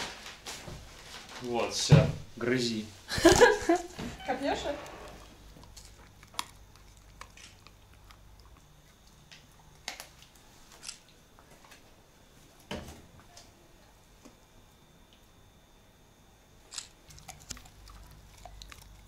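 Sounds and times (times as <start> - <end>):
dog chewing hard treat: 5.1 - 9.9, 17.1 - 19.0.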